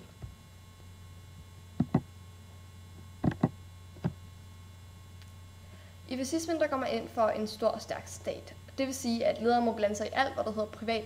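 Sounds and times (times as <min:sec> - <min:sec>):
low electrical hum: 0:00.0 - 0:11.0
computer mouse clicks: 0:03.2 - 0:03.5.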